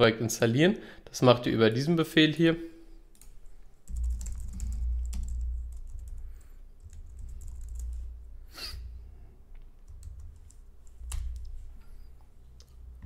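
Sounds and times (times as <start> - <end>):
low background hum: 2.6 - 13.0.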